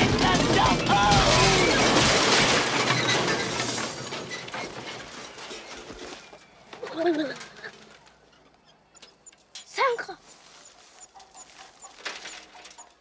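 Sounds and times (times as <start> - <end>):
cart crashing into wooden stall: 0.0 - 7.9
falling debris clattering: 0.0 - 8.3.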